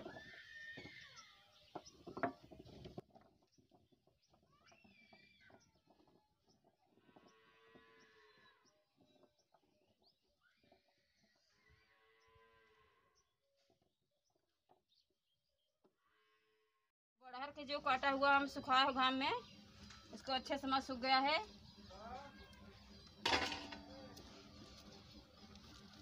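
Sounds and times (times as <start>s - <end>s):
drawn-out animal call: 0.0s - 2.7s, 6.9s - 9.2s
faint bird chirps: 4.2s - 6.0s
fruit clattering off steel plate: 23.2s - 24.0s.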